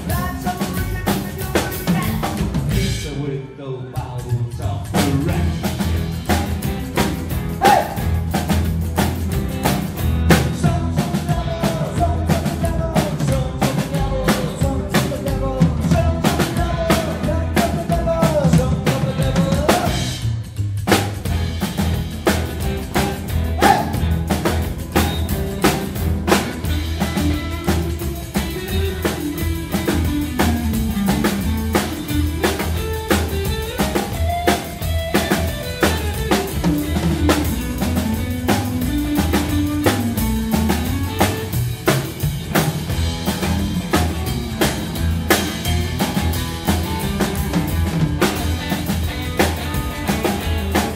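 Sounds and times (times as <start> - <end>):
drum kit with snare hits: 0.0 - 3.2, 4.2 - 50.9
upright bass: 0.0 - 50.9
electric guitar lead melody: 21.3 - 50.9.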